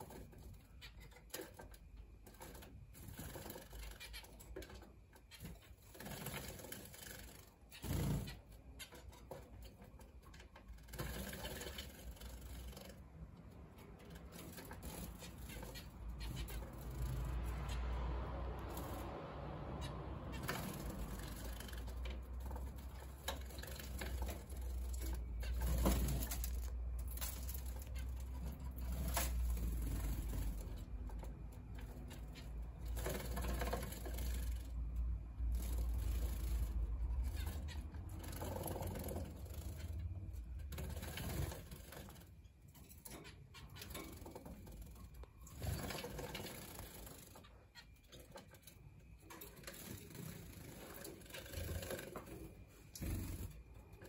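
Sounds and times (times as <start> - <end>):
low background hum: 0.0 - 54.0
finch chirps: 3.2 - 9.8, 13.8 - 18.0.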